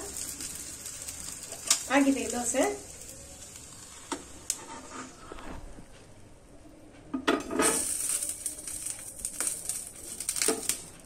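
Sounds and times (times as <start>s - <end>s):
spatula scraping a pan: 3.9s - 5.6s.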